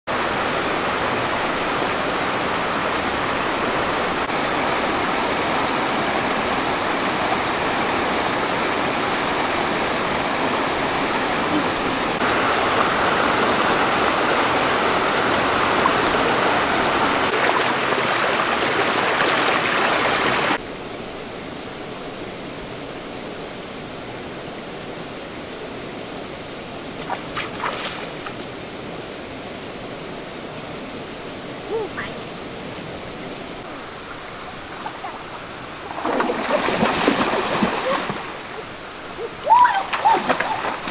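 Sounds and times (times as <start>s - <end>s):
stream water rushing: 0.1s - 40.9s
feet wading in water: 34.0s - 38.8s, 39.5s - 40.9s.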